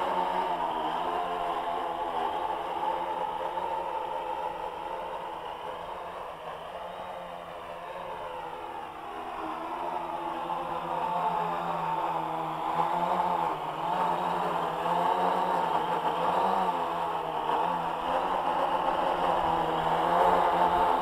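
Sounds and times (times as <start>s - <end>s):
drone propellers buzzing: 8.2s - 21.0s.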